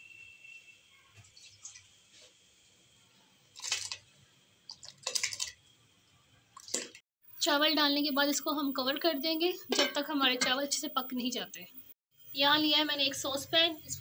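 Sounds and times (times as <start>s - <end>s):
rice splashing into boiling water: 3.6s - 5.6s.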